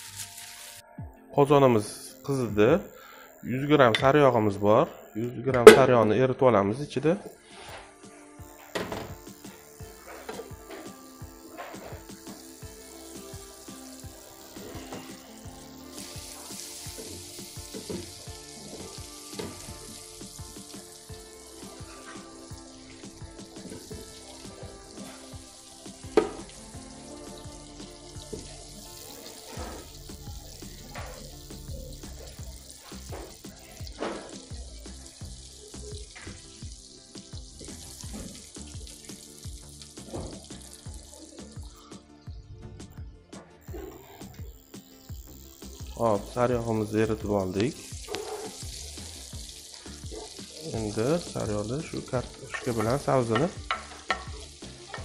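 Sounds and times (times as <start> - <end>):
butter sizzling in a pot: 0.0 - 0.8, 7.2 - 42.3, 43.6 - 55.0
music with steady beat: 7.4 - 55.0.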